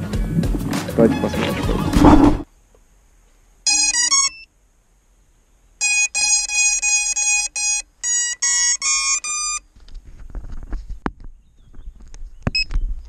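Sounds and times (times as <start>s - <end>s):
motor beeps: 3.7s - 4.5s, 5.8s - 9.6s.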